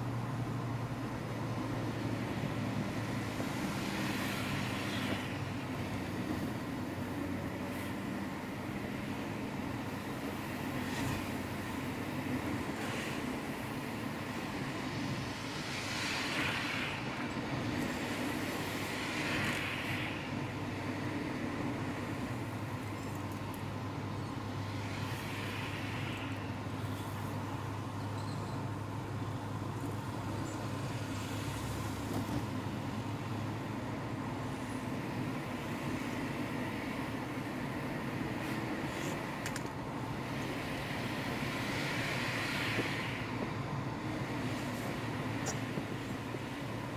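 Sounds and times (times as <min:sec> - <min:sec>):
car engine hum: 0:00.0 - 0:46.9
tyre and road noise: 0:00.0 - 0:46.9
hiss: 0:12.7 - 0:20.4, 0:24.8 - 0:27.4, 0:40.2 - 0:46.7.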